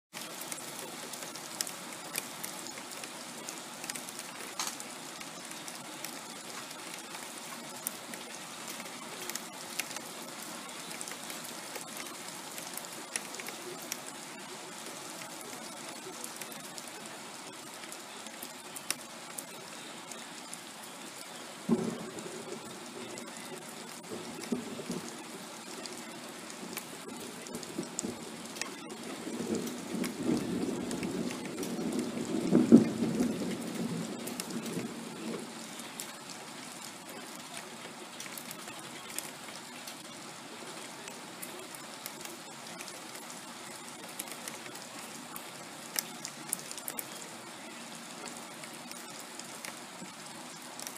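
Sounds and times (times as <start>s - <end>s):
steady rain: 0.0s - 50.9s
thunder rumbling: 21.6s - 36.1s.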